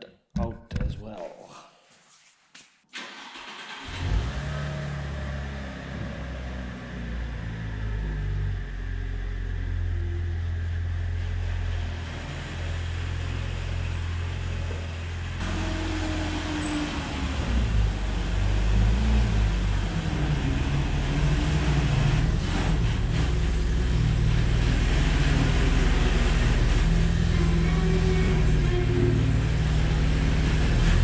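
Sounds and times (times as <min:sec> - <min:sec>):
heavy machine engine running: 0:03.8 - 0:31.0.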